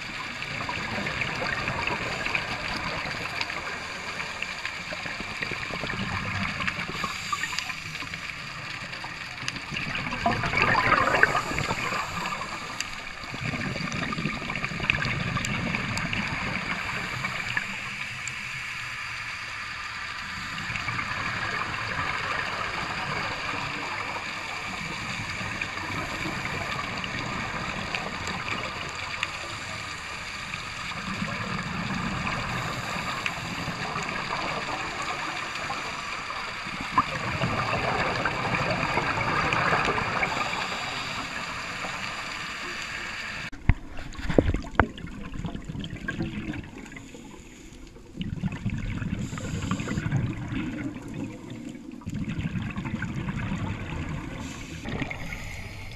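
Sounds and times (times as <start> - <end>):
bubbles gurgling underwater: 0.0 - 17.9, 20.3 - 42.8, 43.4 - 55.9
scuba regulator breathing: 39.6 - 43.6, 46.6 - 48.1, 49.0 - 50.8, 54.2 - 55.9.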